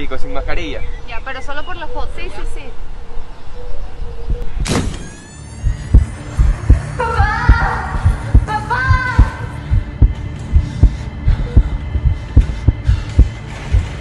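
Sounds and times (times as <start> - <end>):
rapid heartbeat thumping: 5.6 - 14.0.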